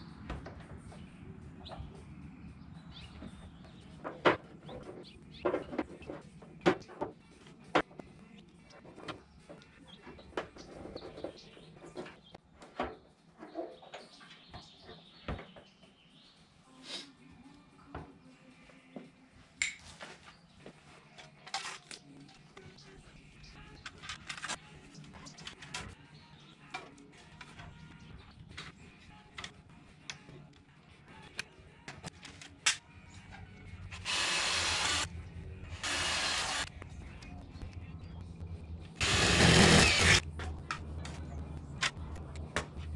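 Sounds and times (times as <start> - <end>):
power driver running: 33.9 - 35.1, 35.7 - 36.7, 39.0 - 40.2.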